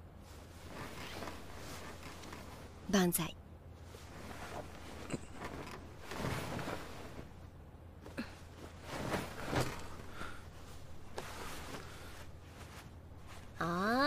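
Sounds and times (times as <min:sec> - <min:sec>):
clothing and bedding rustling: 0:00.1 - 0:03.0, 0:03.6 - 0:14.0
quiet breaths: 0:08.1 - 0:13.5.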